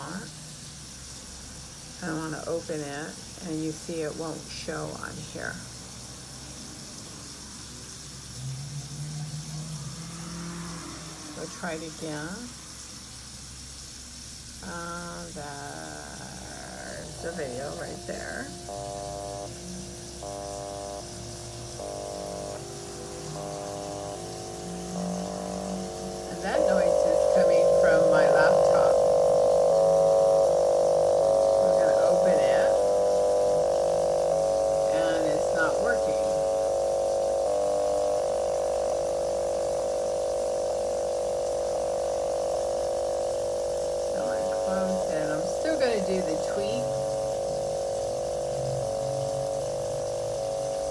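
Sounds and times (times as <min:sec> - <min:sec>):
electronic buzzing chords: 0:00.0 - 0:00.2, 0:14.6 - 0:50.9.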